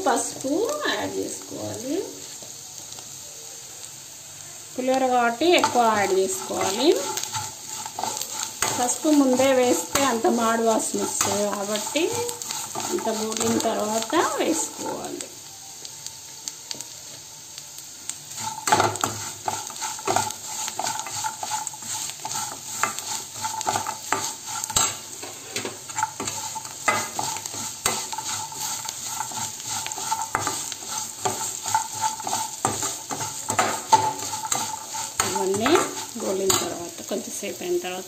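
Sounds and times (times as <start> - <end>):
frying oil sizzling: 0.0 - 38.0
metal spoon scraping metal pan: 5.5 - 14.9, 18.4 - 36.8.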